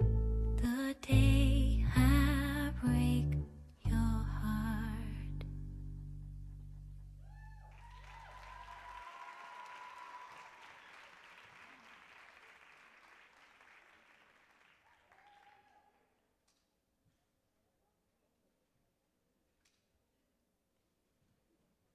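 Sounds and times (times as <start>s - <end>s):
cheers: 7.2s - 16.1s
audience applauding: 7.6s - 16.1s.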